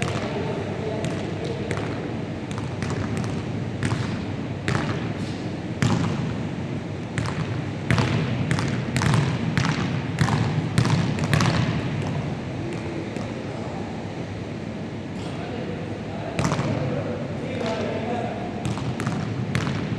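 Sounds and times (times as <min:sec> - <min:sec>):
basketball bouncing on wooden floor: 0:01.0 - 0:05.0, 0:05.8 - 0:06.3, 0:07.2 - 0:13.3, 0:18.6 - 0:19.9.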